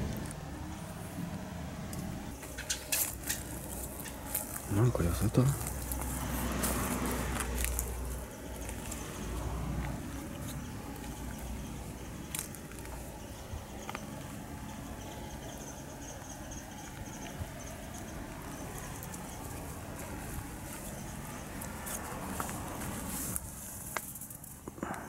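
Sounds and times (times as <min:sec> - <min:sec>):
footsteps crunching through leaves: 0:02.4 - 0:13.2, 0:18.2 - 0:24.5
twigs snapping: 0:05.6 - 0:09.0.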